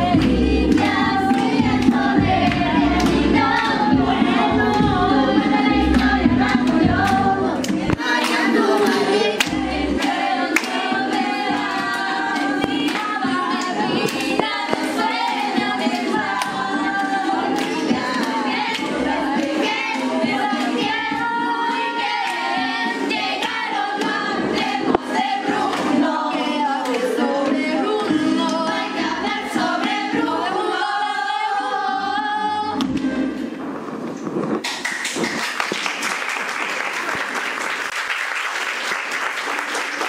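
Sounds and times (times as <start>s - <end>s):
young voices singing: 0.0s - 33.5s
musical accompaniment: 0.0s - 35.5s
audience applause: 34.6s - 40.0s.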